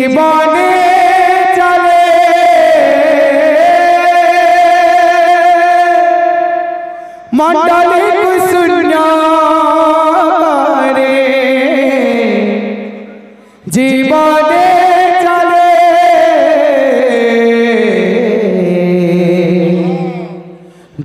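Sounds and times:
man singing long wavering phrases: 0.0s - 21.0s.

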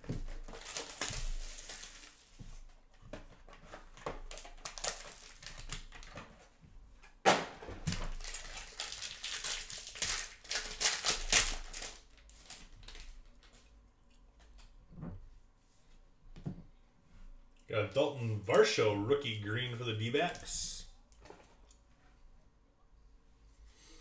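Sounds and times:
foil pack crinkling: 0.0s - 2.4s, 3.7s - 6.3s, 7.9s - 13.6s
shrink-wrap crinkling and tearing: 0.0s - 2.4s, 3.7s - 6.3s, 7.9s - 13.6s.

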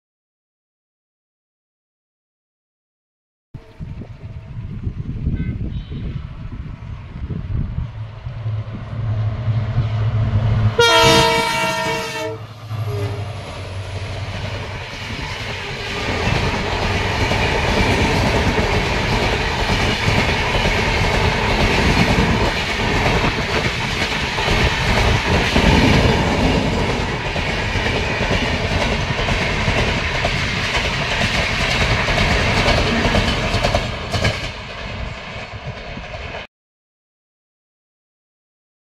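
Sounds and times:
diesel locomotive engine rumble: 3.6s - 36.5s
train horn blast: 5.3s - 6.3s, 10.5s - 13.4s
train wheels clattering on rails: 13.5s - 36.5s.

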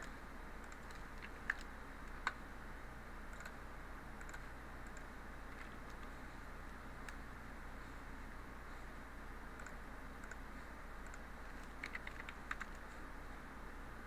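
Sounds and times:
mouse and keyboard clicks: 0.0s - 2.4s, 11.0s - 12.9s
steady low hum: 0.0s - 14.0s.

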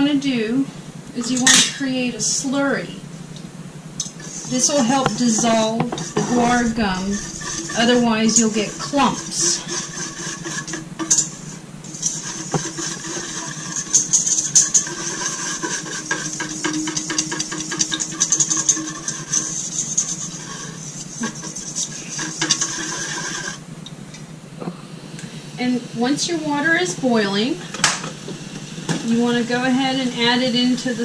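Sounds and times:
whisk scraping metal bowl: 4.0s - 23.6s.

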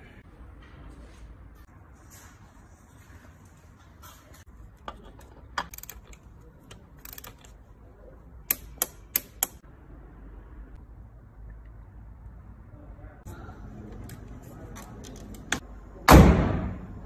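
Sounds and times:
torque wrench clicking: 7.0s - 7.5s, 8.4s - 9.6s.

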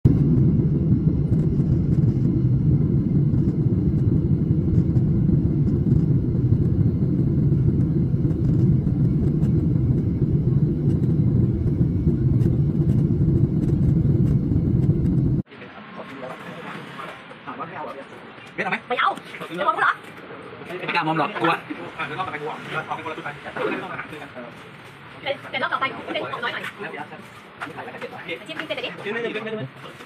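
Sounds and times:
airliner cabin engine rumble: 0.0s - 15.5s.

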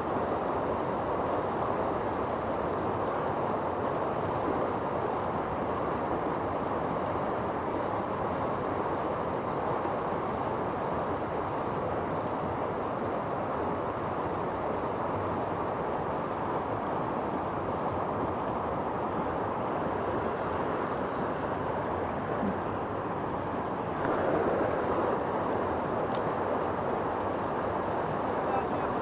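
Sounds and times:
river water rushing: 0.0s - 29.0s.

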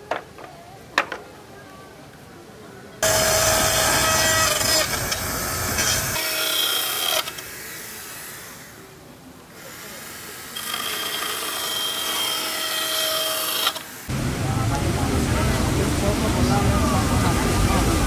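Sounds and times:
chainsaw cutting wood: 3.0s - 8.8s, 9.6s - 13.9s.

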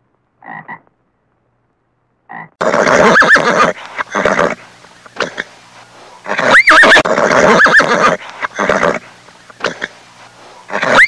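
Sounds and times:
horse neighing: 2.6s - 4.6s, 6.2s - 10.0s, 10.7s - 11.0s.

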